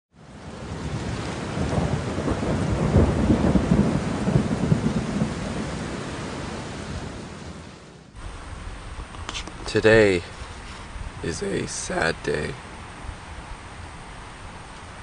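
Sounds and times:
rain: 0.1 - 15.0
thunder rumbling: 0.2 - 15.0.

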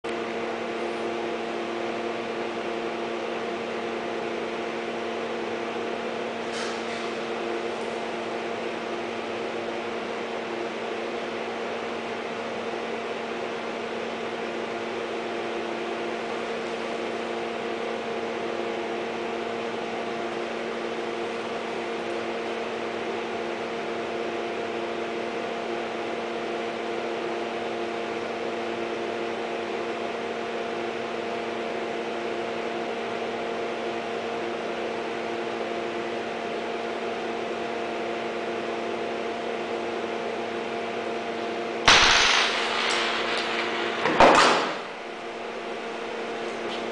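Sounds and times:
machine hum: 41.9 - 46.9.

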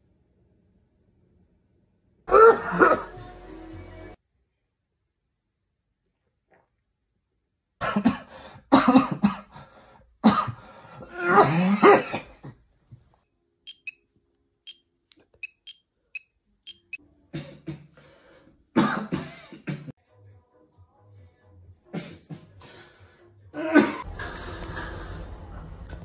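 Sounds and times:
person coughing hard: 2.3 - 3.1, 7.8 - 9.5, 10.2 - 10.6, 11.2 - 12.6, 18.8 - 19.9
short high electronic beeps: 13.7 - 14.0, 15.4 - 17.0.

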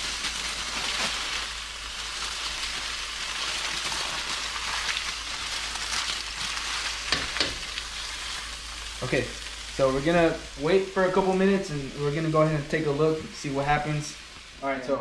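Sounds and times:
foil crinkling: 0.0 - 9.6
fish sizzling in a pan: 0.0 - 14.9.

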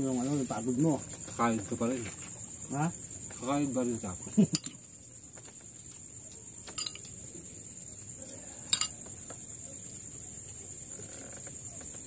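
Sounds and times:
crickets trilling: 0.0 - 12.0
tableware clattering: 4.5 - 4.8, 6.7 - 7.1, 8.7 - 9.0
tableware clink: 4.5 - 4.8, 6.7 - 7.1, 8.7 - 9.0.

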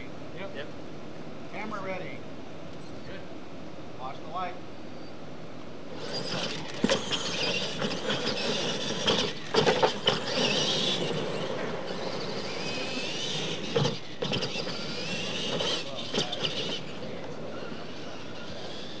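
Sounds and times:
electric motors whining: 5.9 - 19.0
toy trucks knocking and clattering: 6.0 - 19.0.

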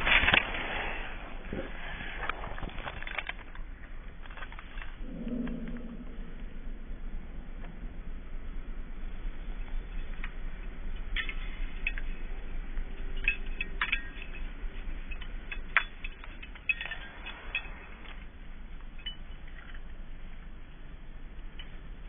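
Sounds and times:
dog collar metal jingles: 11.0 - 20.3.

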